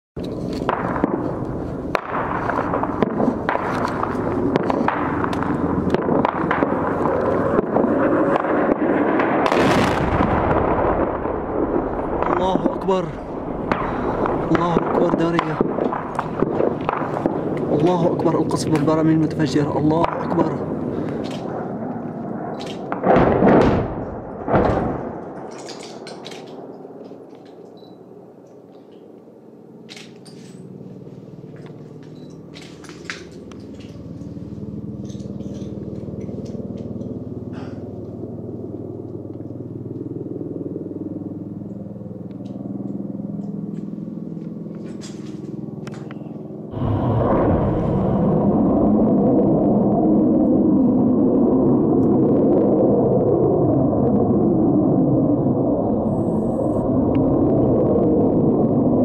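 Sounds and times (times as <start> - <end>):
continuous rumbling noise: 0.2 - 59.0
distant explosions: 0.3 - 27.3, 46.7 - 59.0
gunshots cracking: 0.6 - 12.9, 13.6 - 18.1, 22.5 - 26.7.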